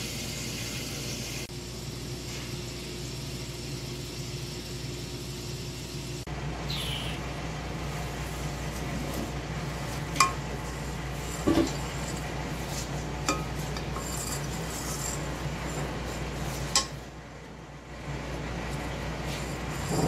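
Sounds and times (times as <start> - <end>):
steady low hum: 1.5 - 20.0.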